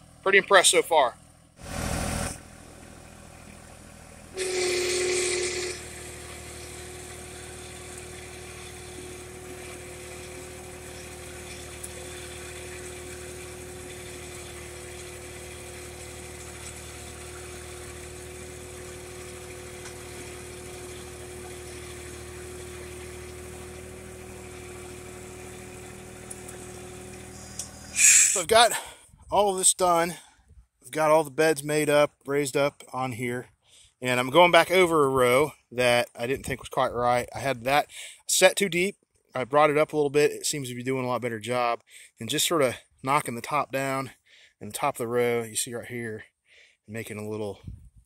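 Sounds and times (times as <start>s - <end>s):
tractor diesel engine idling: 0.0s - 47.9s
steady whine: 4.3s - 15.4s, 26.5s - 29.6s.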